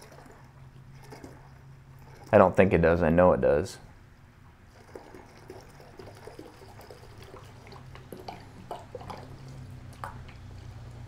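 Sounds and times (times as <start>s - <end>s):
liquid pouring from jug: 0.0s - 2.6s, 4.6s - 11.0s
small clicks and splashes: 4.7s - 11.0s.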